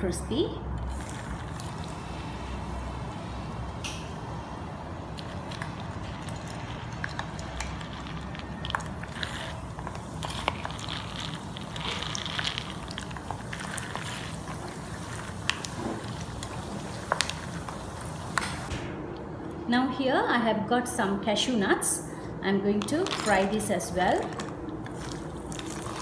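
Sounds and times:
peanuts sizzling in hot oil: 5.6 - 18.7.

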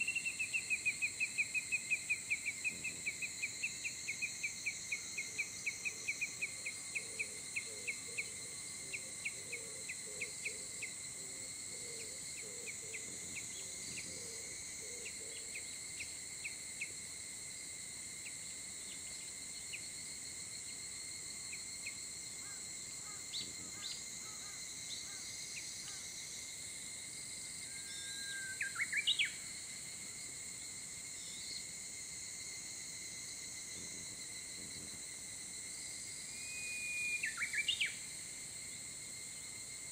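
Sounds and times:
insects high-pitched tones: 0.0 - 39.9.

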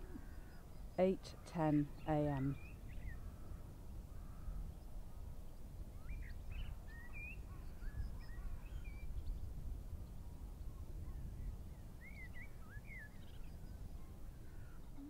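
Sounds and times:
birds chirping: 0.0 - 4.6.

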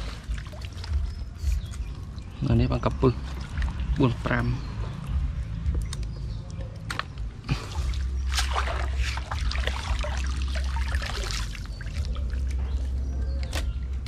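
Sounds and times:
steady low rumble: 0.0 - 14.0
water dripping off net: 0.2 - 2.3, 7.8 - 13.6.

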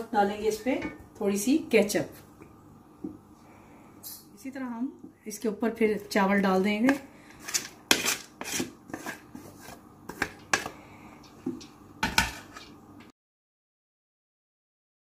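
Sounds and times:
wooden spatula scraping a pot: 6.8 - 10.8, 12.0 - 12.8.

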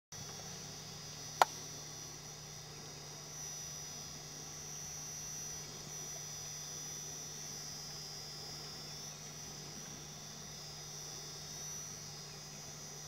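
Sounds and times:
thin high-pitched whine: 0.2 - 13.0.

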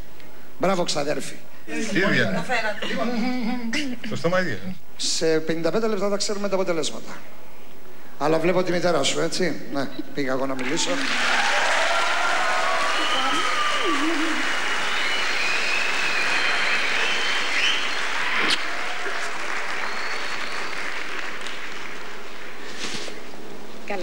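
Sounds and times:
audience cheering: 10.6 - 22.5
audience applauding: 10.6 - 22.8
high whistles: 12.6 - 21.3.

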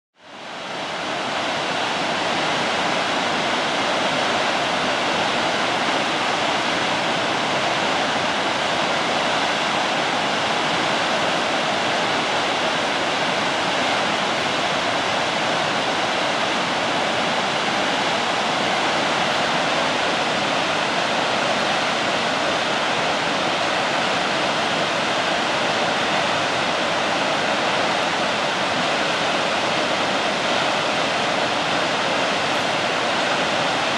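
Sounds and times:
waterfall rushing: 0.2 - 33.9.

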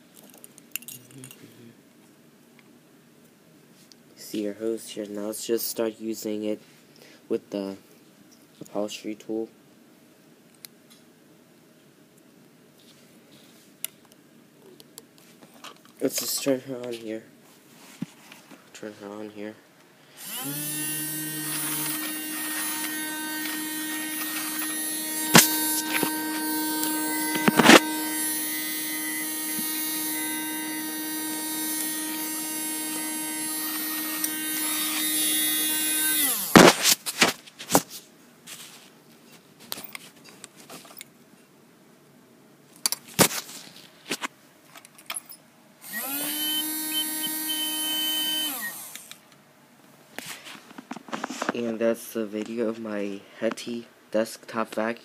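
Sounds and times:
mini vacuum motor whine: 20.2 - 36.7, 45.8 - 49.2.

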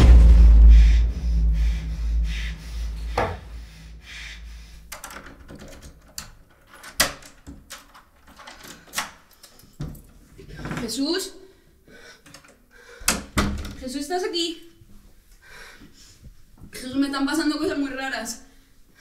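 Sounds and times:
deep low boom: 0.0 - 4.9.

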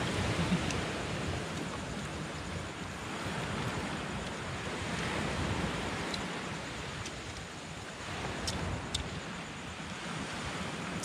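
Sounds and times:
sea surf rushing: 0.0 - 7.0
wind: 0.0 - 11.0.

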